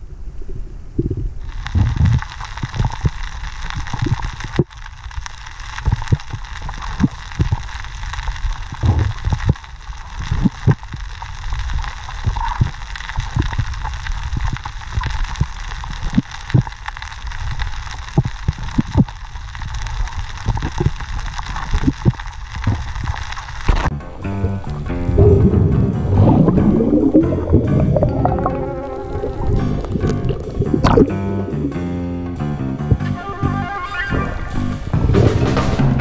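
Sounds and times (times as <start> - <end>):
low underwater rumble: 0.0 - 5.3, 23.8 - 33.1
steady hiss: 0.0 - 36.0.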